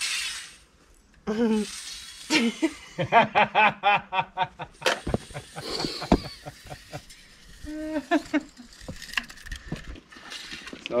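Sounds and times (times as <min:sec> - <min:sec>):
boots stepping on concrete: 0:05.0 - 0:06.3
heavy thumps: 0:05.0 - 0:06.4.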